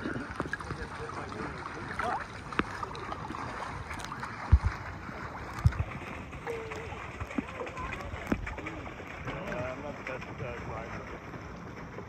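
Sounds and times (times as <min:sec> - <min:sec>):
water lapping and splashing: 0:00.0 - 0:12.0
wind on microphone: 0:01.9 - 0:09.8.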